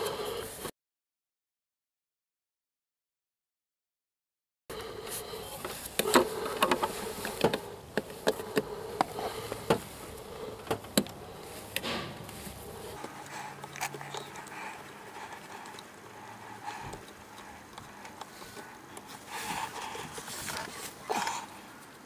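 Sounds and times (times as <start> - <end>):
steady buzz: 4.7 - 17.7
hand clicking on hose fittings: 4.7 - 20.8.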